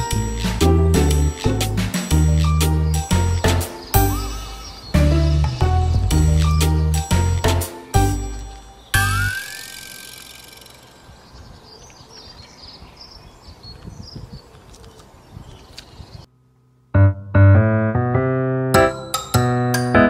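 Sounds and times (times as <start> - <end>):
keyboard tune: 0.0 - 10.4, 16.9 - 20.0.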